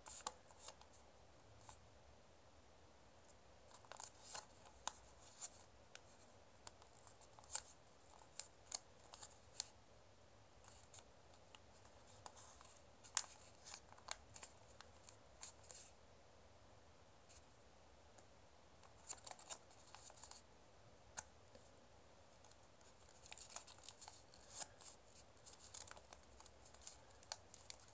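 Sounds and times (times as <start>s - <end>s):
paper crackling and crinkling: 3.7s - 9.8s, 22.4s - 27.9s.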